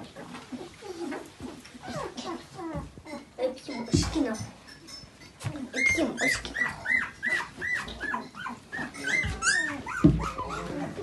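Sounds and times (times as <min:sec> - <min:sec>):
puppy whimpering: 0:00.5 - 0:03.4, 0:05.6 - 0:11.0.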